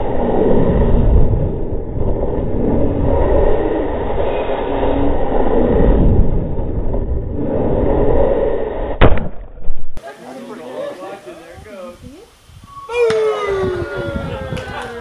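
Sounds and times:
deep wind rumble: 0.0s - 10.0s, 11.9s - 15.0s.

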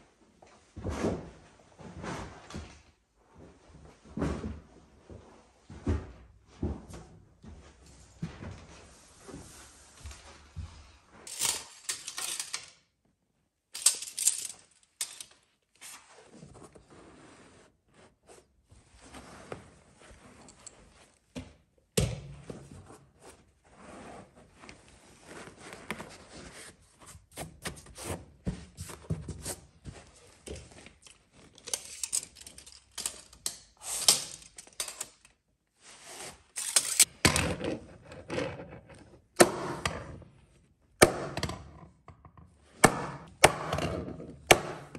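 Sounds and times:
carpet scraping and rustling: 15.8s - 21.3s, 22.5s - 32.8s.

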